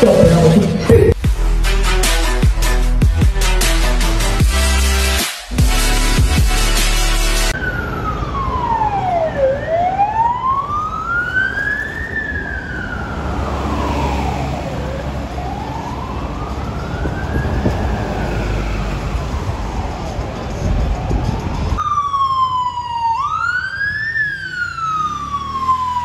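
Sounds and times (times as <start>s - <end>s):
electronic music: 0.0s - 7.6s
ambulance siren wailing: 7.5s - 26.0s
low traffic rumble: 7.5s - 26.0s.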